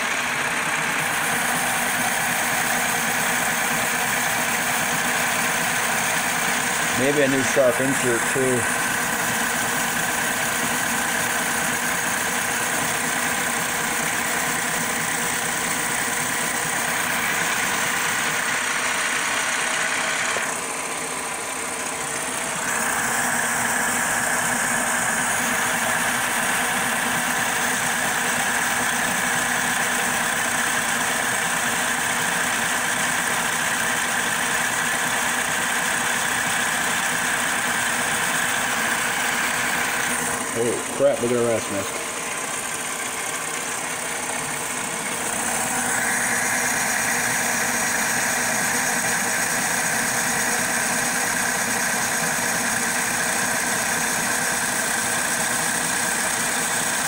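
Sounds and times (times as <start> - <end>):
lathe cutting metal whine: 0.0 - 57.0.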